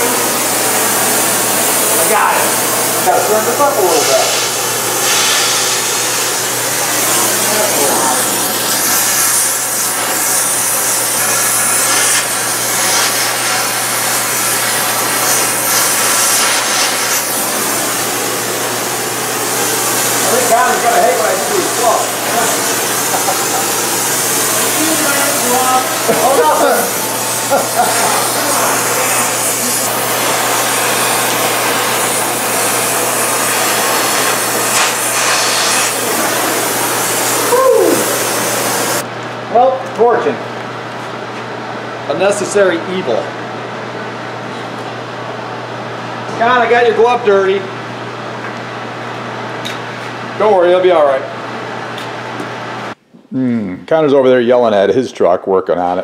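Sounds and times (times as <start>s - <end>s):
cutting torch hissing: 0.0s - 39.0s.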